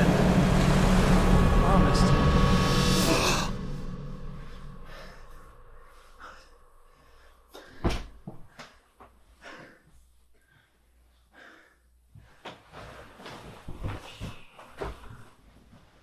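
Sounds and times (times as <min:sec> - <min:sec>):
faint bumps and rustles: 0:12.1 - 0:16.0.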